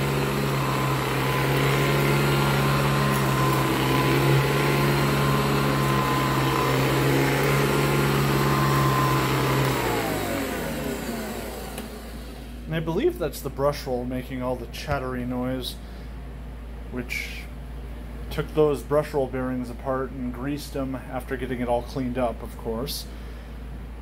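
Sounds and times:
upright vacuum running on carpet: 0:00.0 - 0:12.6
vacuum motor winding down: 0:00.0 - 0:12.6.

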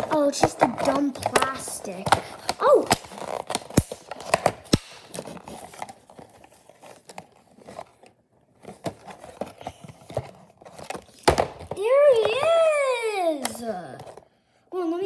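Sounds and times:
plastic packaging crinkling: 0:00.7 - 0:11.2.

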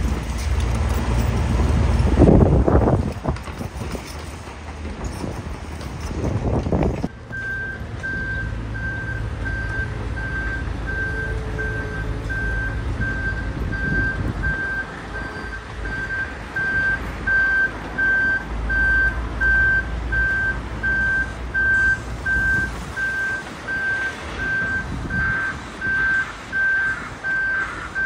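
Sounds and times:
diesel engines rumbling: 0:00.0 - 0:28.0
reversing alarm beeping: 0:07.1 - 0:28.0.

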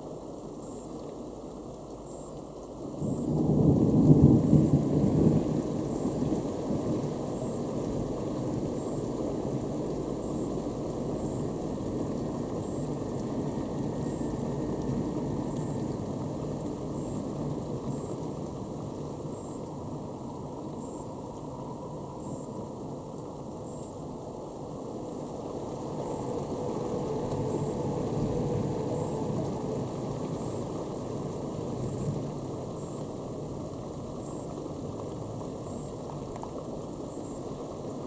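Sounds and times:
low rolling thunder rumble: 0:03.0 - 0:22.8, 0:25.0 - 0:34.2.

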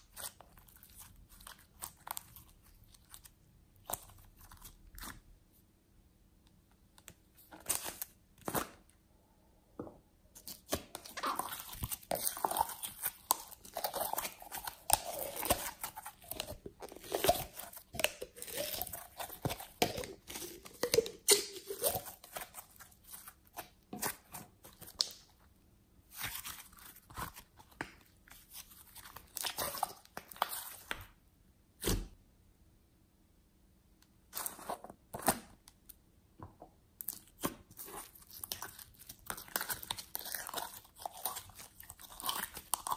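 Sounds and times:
slime crackling and popping: 0:10.5 - 0:25.3, 0:37.0 - 0:42.9.

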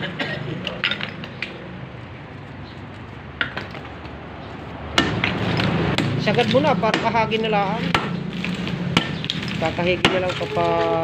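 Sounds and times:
concrete chunks clacking: 0:00.6 - 0:01.6, 0:04.9 - 0:11.0.

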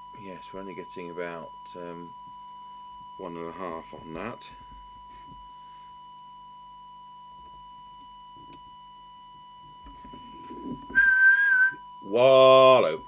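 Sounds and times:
high-pitched test tone: 0:09.9 - 0:13.0.

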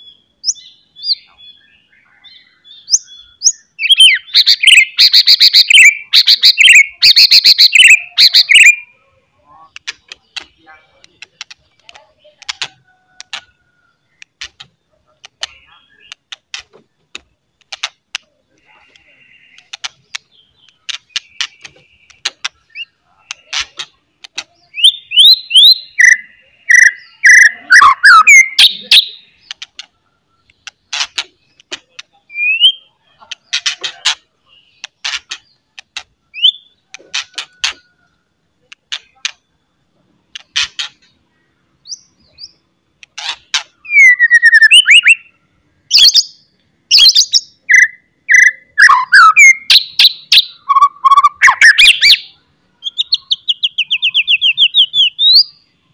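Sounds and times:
bird whistled phrases: 0:02.7 - 0:08.9, 0:24.7 - 0:29.3, 0:32.3 - 0:33.0, 0:36.3 - 0:38.0, 0:43.7 - 0:55.6
bird harsh clicking chatter: 0:09.7 - 0:32.3, 0:33.2 - 0:36.2, 0:36.8 - 0:38.0, 0:38.6 - 0:39.4, 0:40.3 - 0:41.2, 0:43.0 - 0:43.8.

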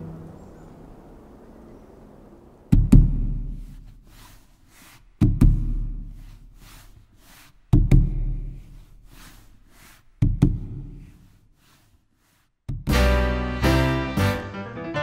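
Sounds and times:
soft hissing strokes: 0:00.2 - 0:12.6
deep drum strokes: 0:02.6 - 0:06.7.

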